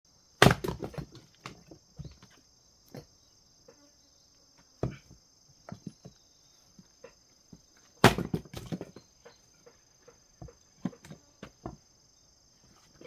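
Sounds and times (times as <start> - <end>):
insects buzzing: 0.1 - 13.0
axe chopping wood: 0.4 - 1.7, 8.0 - 9.0.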